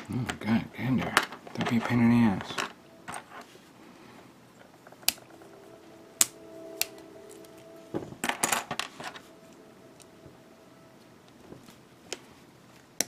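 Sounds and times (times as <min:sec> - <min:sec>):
plastic parts rattling: 0:01.0 - 0:03.3.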